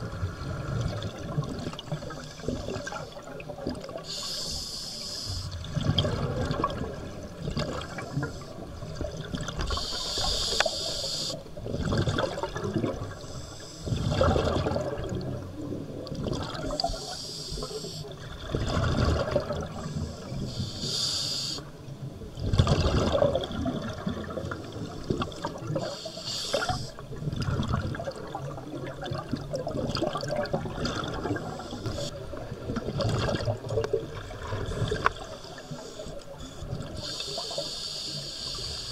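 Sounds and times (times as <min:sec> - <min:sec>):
gurgling exhaled bubbles: 0:00.0 - 0:04.3, 0:05.5 - 0:09.8, 0:11.6 - 0:13.2, 0:13.8 - 0:17.1, 0:18.2 - 0:20.4, 0:22.4 - 0:35.4
hissing regulator inhalations: 0:04.0 - 0:05.6, 0:09.7 - 0:11.4, 0:16.8 - 0:18.2, 0:19.8 - 0:21.7, 0:25.8 - 0:27.0, 0:31.4 - 0:32.1, 0:35.1 - 0:38.9.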